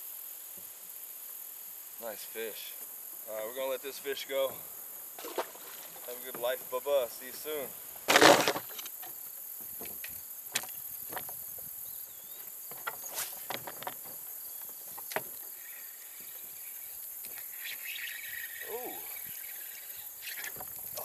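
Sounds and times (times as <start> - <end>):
insects chirring: 0.0 - 21.0
wavering call: 17.5 - 20.5.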